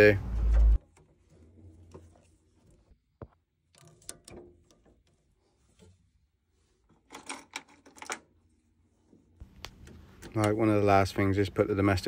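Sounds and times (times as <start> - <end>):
hose fittings clicking and rattling: 3.6 - 6.0, 6.8 - 8.6, 9.4 - 11.0.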